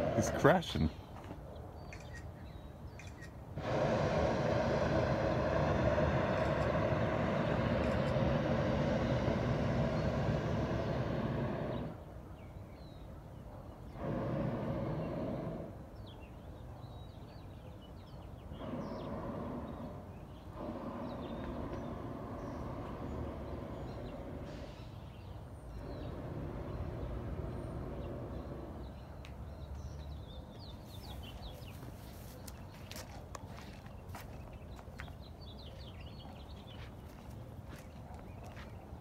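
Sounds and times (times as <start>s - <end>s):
propane burner blasts: 0.0s - 0.9s, 3.4s - 12.2s, 13.8s - 16.2s, 18.4s - 29.5s.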